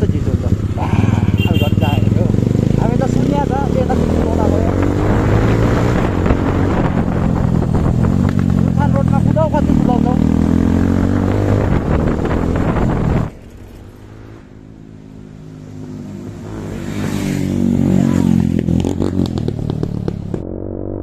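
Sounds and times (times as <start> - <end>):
motorcycle engine running: 0.0 - 20.6
motorcycle approaching: 0.0 - 21.0
wind noise: 4.0 - 9.0, 9.6 - 14.5.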